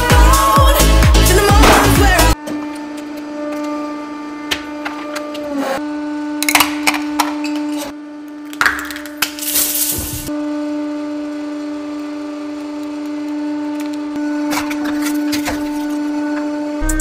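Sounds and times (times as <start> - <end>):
hydraulic press humming: 0.8 - 8.0.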